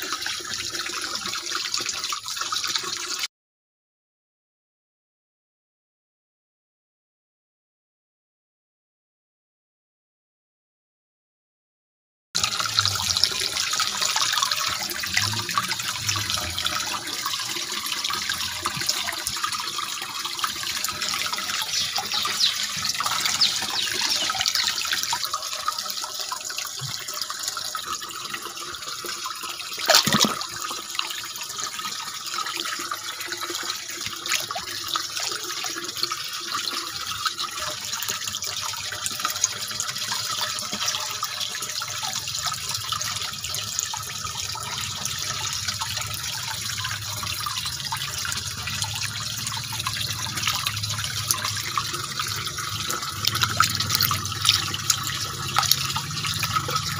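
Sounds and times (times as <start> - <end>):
water bubbling and trickling: 12.4 - 56.9.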